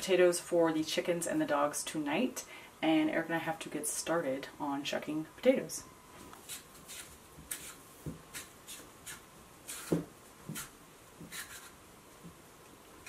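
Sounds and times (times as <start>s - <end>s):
peeler scraping potato: 6.4s - 11.8s.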